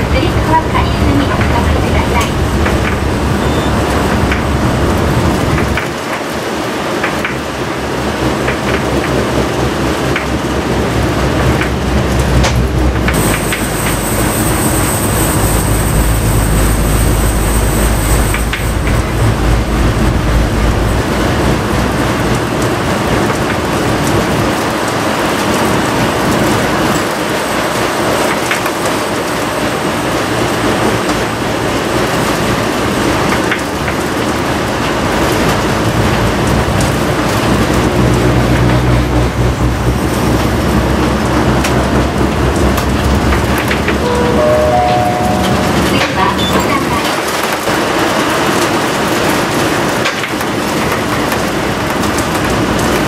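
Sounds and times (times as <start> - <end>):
bus engine running: 0.0 - 53.0
thin high whine: 13.1 - 22.2, 44.0 - 47.2.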